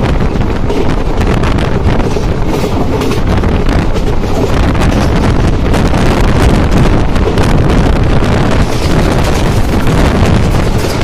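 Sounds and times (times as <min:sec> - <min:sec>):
train rumbling on track: 0:00.0 - 0:11.0
wind buffeting microphone: 0:00.0 - 0:11.0.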